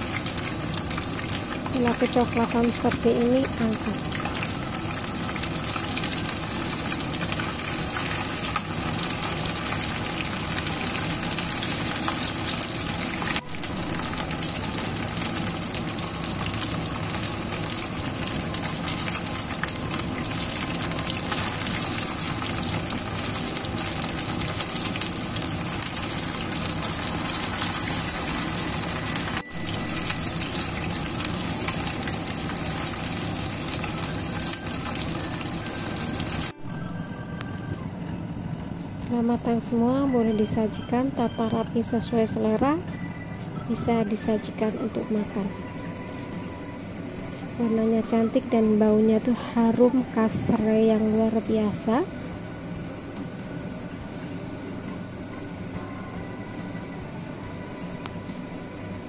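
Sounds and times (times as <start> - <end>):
chicken deep-frying in oil: 0.0 - 37.1.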